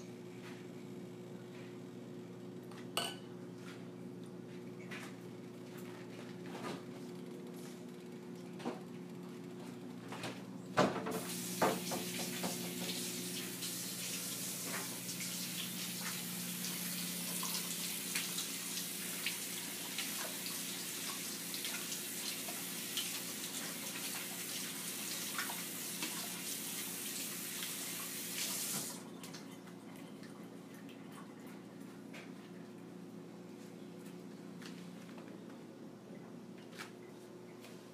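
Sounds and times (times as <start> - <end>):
tap running into sink: 10.8 - 13.5.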